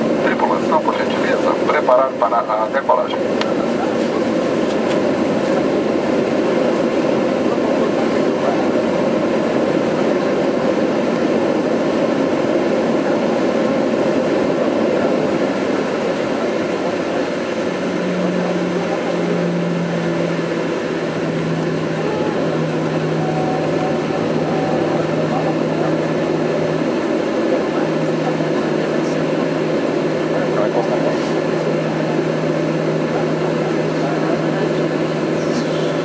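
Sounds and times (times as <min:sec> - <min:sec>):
jet cabin engine rumble: 0:00.0 - 0:36.0
low steady hum: 0:13.0 - 0:36.0.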